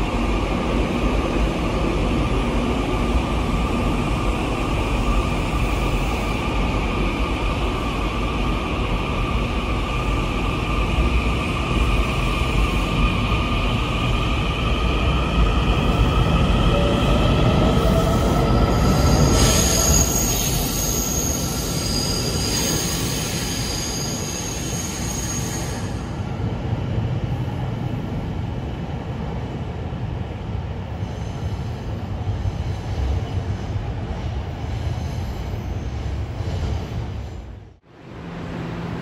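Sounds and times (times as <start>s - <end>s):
train wheels squealing on rails: 15.5s - 26.3s, 31.0s - 33.6s, 34.6s - 37.5s.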